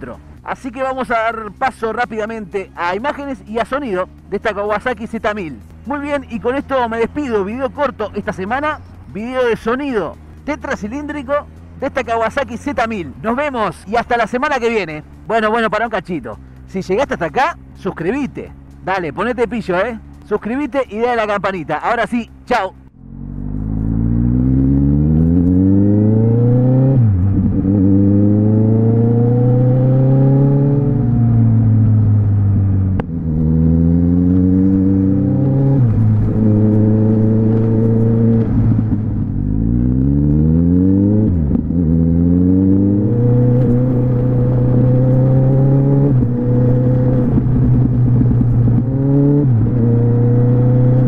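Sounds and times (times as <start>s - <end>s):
motorcycle engine accelerating: 22.9s - 51.0s.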